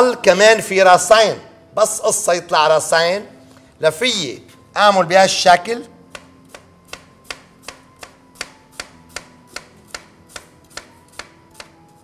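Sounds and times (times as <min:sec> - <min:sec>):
knife slicing onion: 0:06.1 - 0:12.0.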